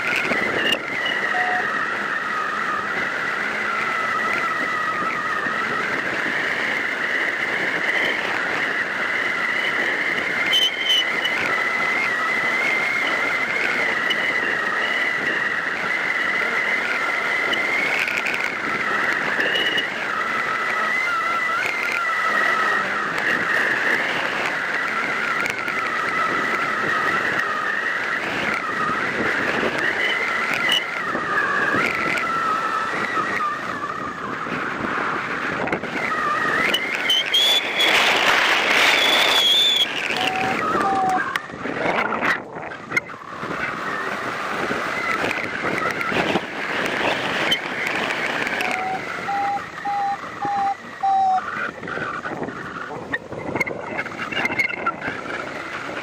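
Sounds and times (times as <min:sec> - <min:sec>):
wind noise on camera: 0:00.0 - 0:56.0
high wavering whistle: 0:00.4 - 0:05.9, 0:07.8 - 0:18.2, 0:36.0 - 0:41.5, 0:48.6 - 0:51.6.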